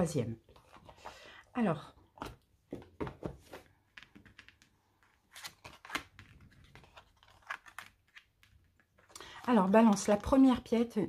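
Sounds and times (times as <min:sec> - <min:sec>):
cards flicking and rustling: 0:03.2 - 0:09.0.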